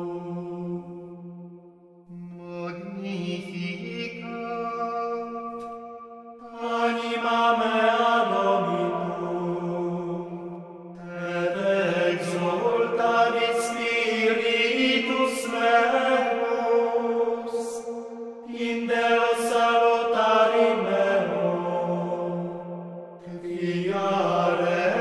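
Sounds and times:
slow sung chant: 0:00.0 - 0:25.0.

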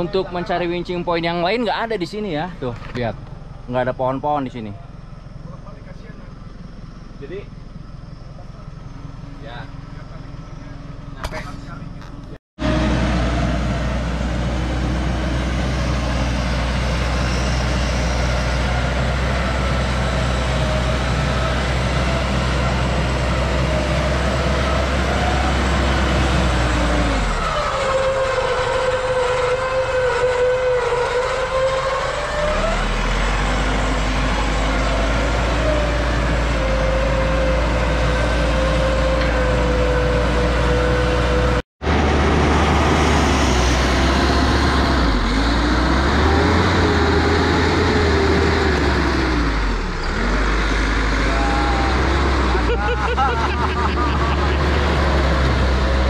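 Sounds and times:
deep engine hum: 0:00.0 - 0:29.8, 0:32.4 - 0:56.0
winch motor whining: 0:18.2 - 0:41.6.

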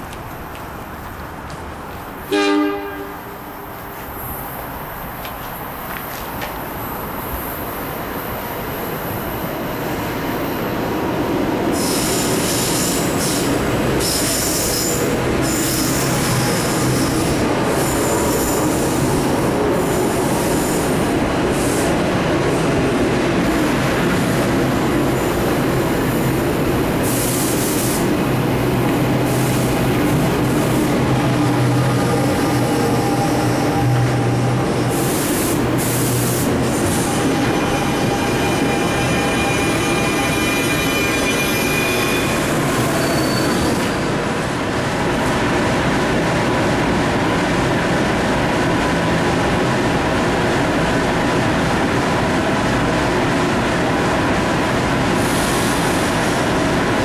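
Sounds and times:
train wheels rumbling on rail: 0:00.0 - 0:57.0
high-pitched wheel squeal: 0:36.9 - 0:44.1.

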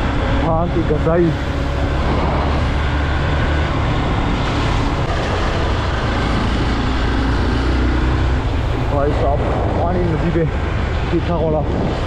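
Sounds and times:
motorcycle engine hum: 0:00.0 - 0:12.0
wind rush on microphone: 0:00.0 - 0:12.0.

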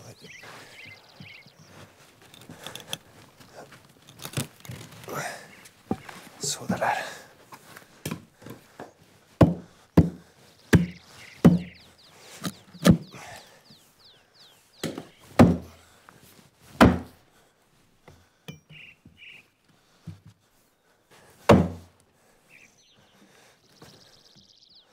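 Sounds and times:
hatchet knocking on wood: 0:09.4 - 0:11.8.

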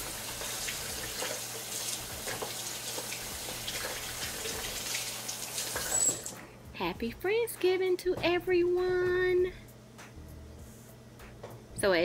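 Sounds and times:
tap water running over hands: 0:00.0 - 0:06.4.

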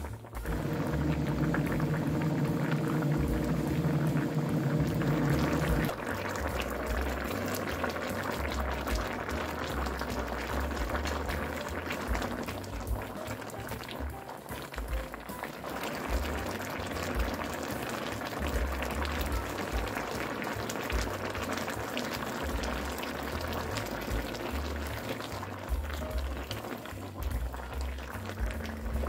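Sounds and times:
stew bubbling in a pan: 0:00.0 - 0:29.0
low steady hum: 0:00.4 - 0:06.0.

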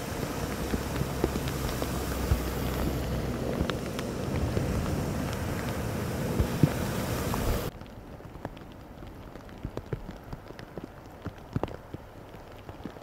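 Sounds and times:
low engine rumble: 0:00.0 - 0:07.7
tyres splashing through water: 0:00.0 - 0:07.8.

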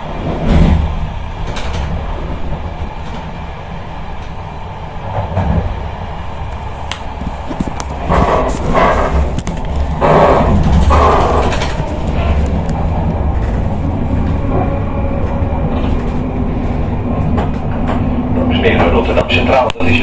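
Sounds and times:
train rumbling on rails: 0:00.0 - 0:20.0.

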